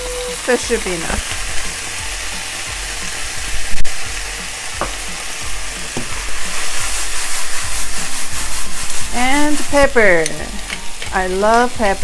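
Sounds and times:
vegetables sizzling in oil: 0:00.0 - 0:12.0
vegetables tossed in pan: 0:00.3 - 0:12.0
pan scraping: 0:06.0 - 0:11.1.

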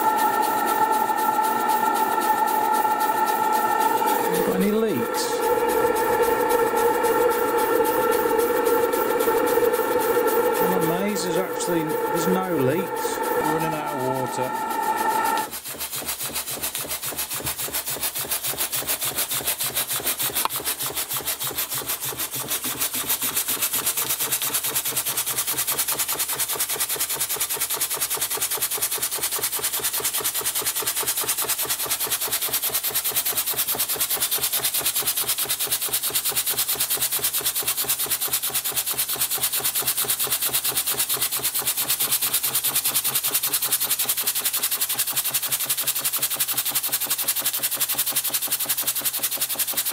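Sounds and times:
torch hissing: 0:00.0 - 0:15.5
steam engine exhaust puffing: 0:00.0 - 0:15.6.

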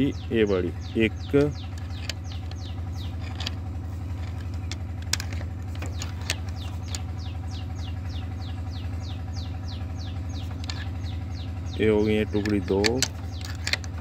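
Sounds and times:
low mechanical hum: 0:00.0 - 0:14.0
metal clicks on flywheel teeth: 0:12.0 - 0:14.0.

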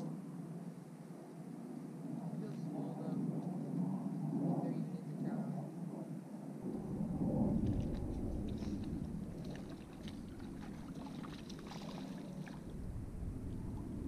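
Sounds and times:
low rumble: 0:06.6 - 0:14.0
water splashing and sloshing: 0:07.5 - 0:12.9
boots wading in water: 0:07.6 - 0:12.7.

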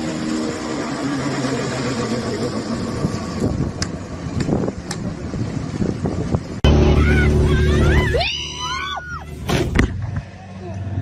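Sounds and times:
wake and wind noise: 0:00.0 - 0:08.1
low motorboat engine drone: 0:00.0 - 0:11.0
outboard engine at speed: 0:00.0 - 0:11.0.

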